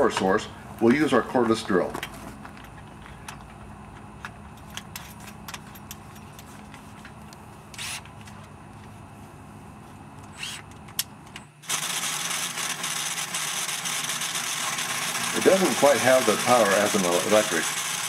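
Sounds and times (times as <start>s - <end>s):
low steady hum: 0.0s - 11.6s
drill whirring: 7.8s - 8.1s, 10.3s - 10.7s, 11.6s - 18.0s.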